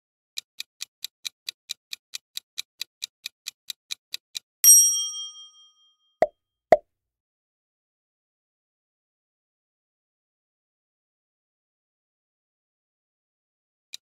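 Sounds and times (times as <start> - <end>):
rapid clock ticks: 0.4 - 4.5
bright bell ding: 4.6 - 6.0.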